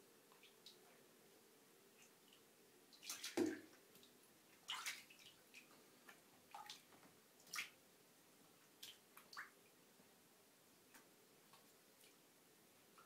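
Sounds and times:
light water splashes in bathtub: 2.0 - 7.8, 8.7 - 9.6
water drips: 2.0 - 7.8.

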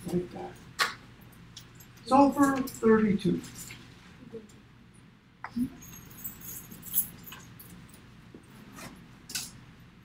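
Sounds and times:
low room hum: 0.0 - 10.0
high metallic jingles: 5.7 - 8.1.

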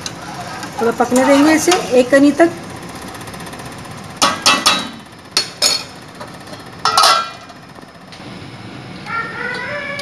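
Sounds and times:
pot lid clanking: 6.8 - 7.4.

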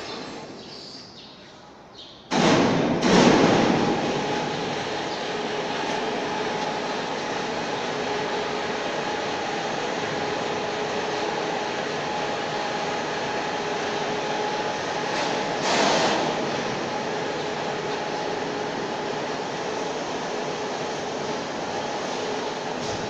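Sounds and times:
factory machinery drone: 1.7 - 23.0
machinery whine: 3.0 - 23.0.

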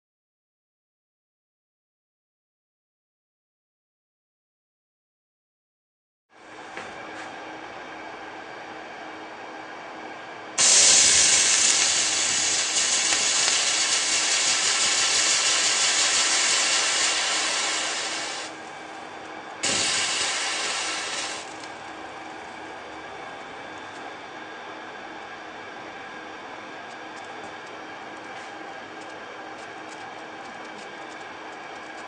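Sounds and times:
water hissing on hotplate: 10.6 - 18.6, 19.6 - 21.8.

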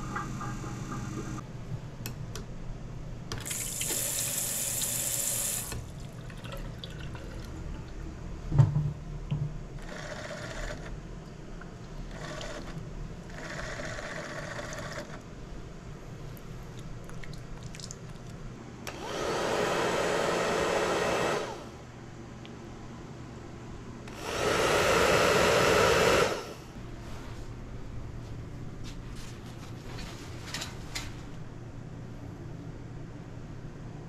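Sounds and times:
soap dispenser pump whirring: 3.5 - 5.8, 18.9 - 21.7, 24.1 - 26.5
water running: 3.5 - 7.6.

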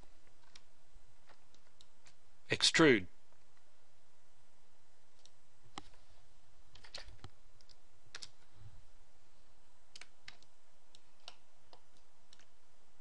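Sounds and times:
steady low hum: 0.0 - 13.0
computer mouse clicks: 0.3 - 2.2, 5.2 - 6.0, 6.7 - 8.5, 9.9 - 12.6.

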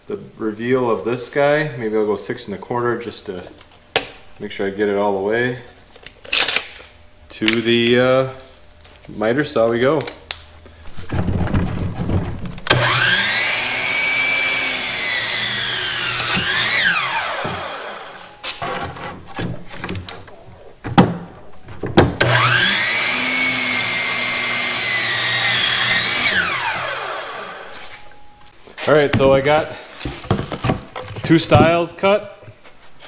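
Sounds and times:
miter saw cutting wood: 12.7 - 19.2, 22.2 - 27.9.

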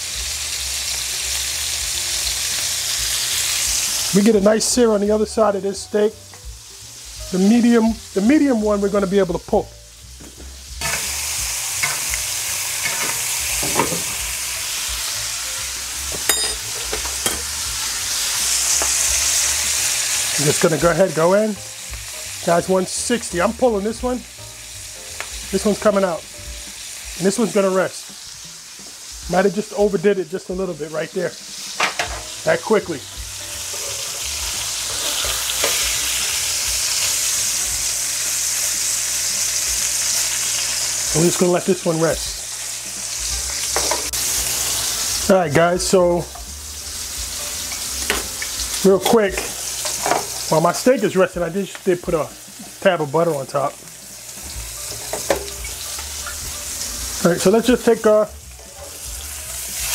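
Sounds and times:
steaks sizzling in butter: 0.0 - 59.9
metal spoon scraping pan: 33.6 - 34.3, 34.9 - 35.9.

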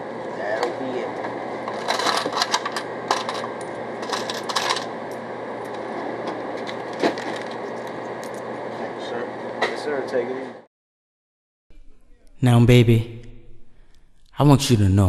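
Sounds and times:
low room hum: 0.0 - 10.7, 11.7 - 15.0
cash register clicks: 1.7 - 4.9
coins clattering on a counter: 4.0 - 4.9.

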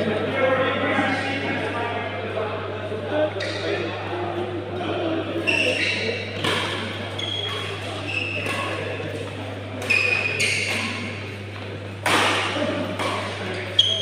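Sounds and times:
shoes squeaking on court: 5.4 - 11.7, 13.0 - 14.0
racket hitting shuttlecock: 6.4 - 13.8.

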